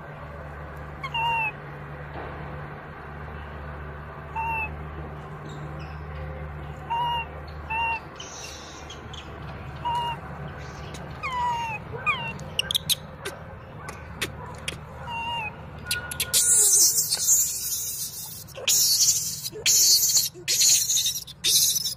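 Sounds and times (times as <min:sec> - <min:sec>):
infant monkey coo calls: 0:01.0 - 0:01.6, 0:04.3 - 0:04.8, 0:06.7 - 0:21.9.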